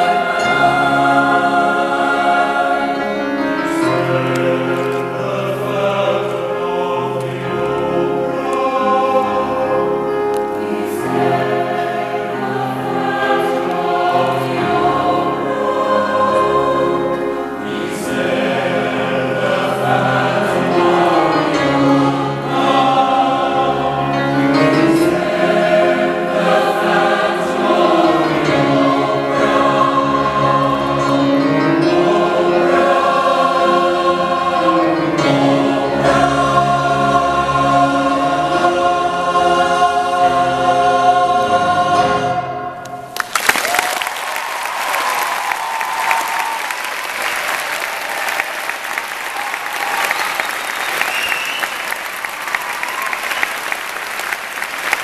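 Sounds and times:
mixed choir singing: 0.0 - 43.1
audience applauding: 42.9 - 55.0.

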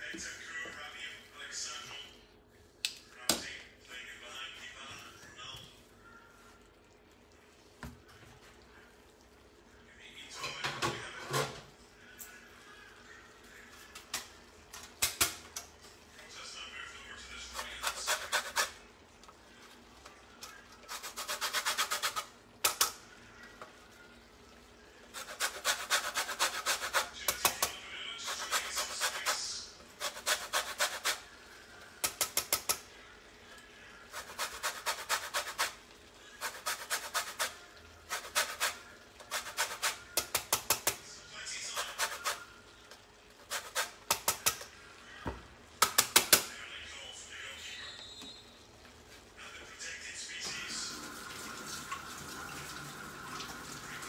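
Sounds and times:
zest grated on metal grater: 17.5 - 18.8, 20.8 - 22.9, 25.1 - 31.2, 34.1 - 35.8, 36.4 - 40.9, 41.7 - 42.4, 43.5 - 44.6.

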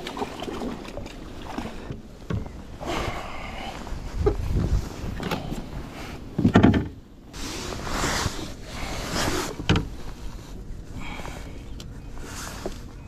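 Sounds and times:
rustling and scraping: 3.7 - 13.0.

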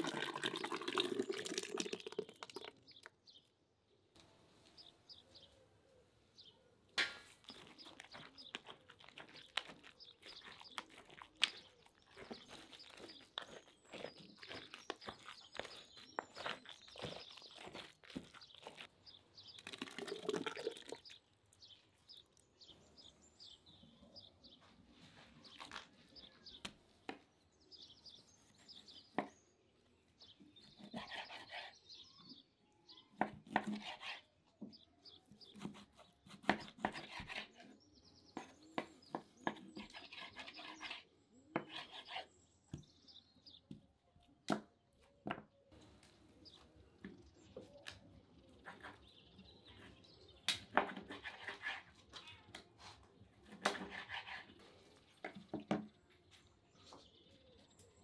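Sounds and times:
spoon stirring thick sauce in pot: 7.4 - 21.2
knife slicing ribs on wooden board: 33.2 - 34.3, 35.4 - 37.6, 53.5 - 54.6.

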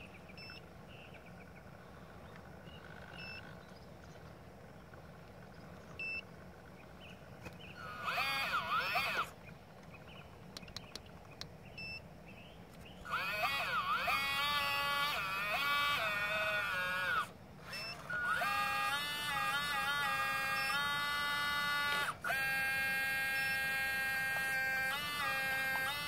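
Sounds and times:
hydraulic pump whining: 7.4 - 9.4, 12.8 - 26.0.

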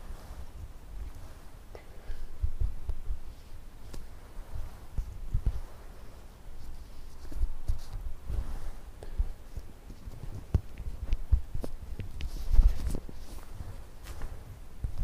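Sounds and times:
soft taps and clicks of handling: 9.0 - 15.0.

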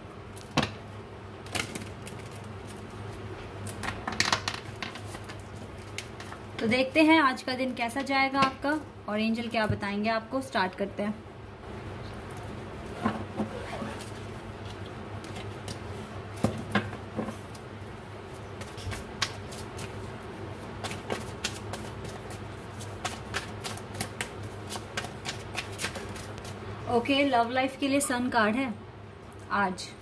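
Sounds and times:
cards being shuffled: 20.8 - 26.6.

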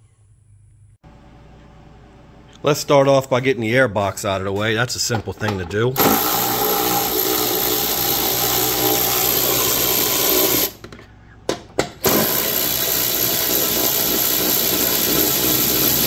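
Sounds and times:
electric ratchet motor whirring: 6.0 - 10.8, 12.0 - 16.0.

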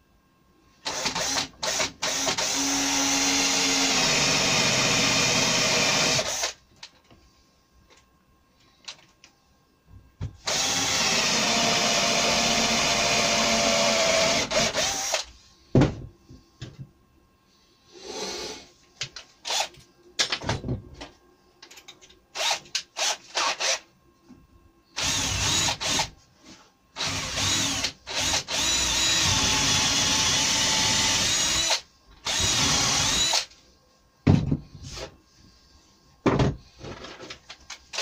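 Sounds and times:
drill running into timber: 27.0 - 33.5.

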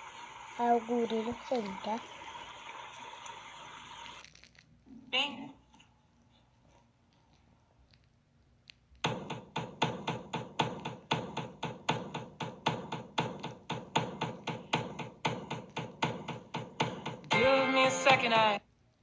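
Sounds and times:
music of short plucked notes: 17.3 - 18.4.

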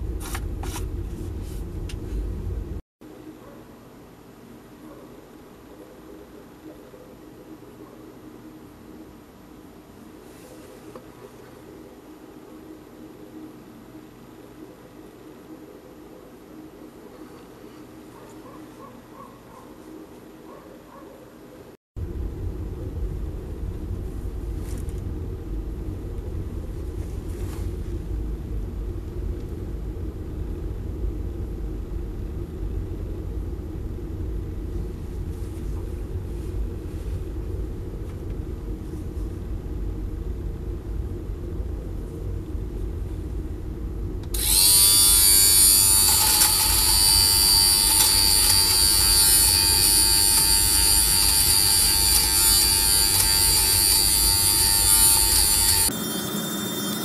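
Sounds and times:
low steady hum: 0.0 - 56.0
lint remover motor whine: 44.2 - 57.0.

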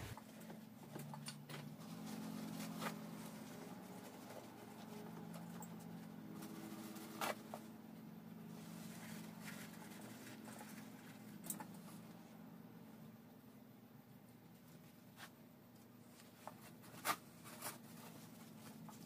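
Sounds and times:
faint steady hum: 0.0 - 19.0
paper towels rustling and crinkling: 1.6 - 7.7, 8.5 - 12.2, 16.0 - 19.0.

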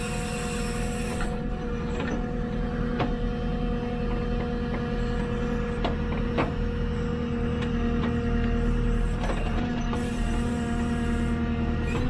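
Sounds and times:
diesel engine running under load: 0.0 - 12.0.

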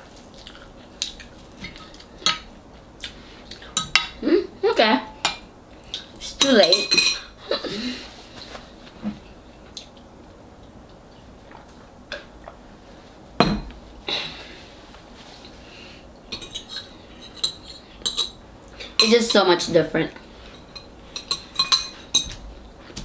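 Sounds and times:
cutlery clinking on a dish: 20.6 - 22.4.

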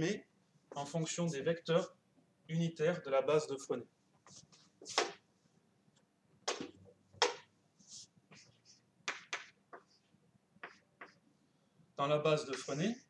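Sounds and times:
chalk scratching on blackboard: 7.2 - 11.2, 12.4 - 13.0.

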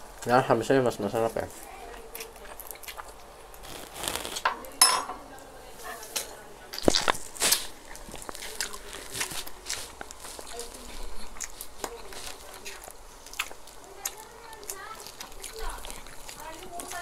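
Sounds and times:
biting and chewing food: 0.0 - 4.5, 6.2 - 17.0
cutlery clinking on dishes: 4.5 - 5.3.

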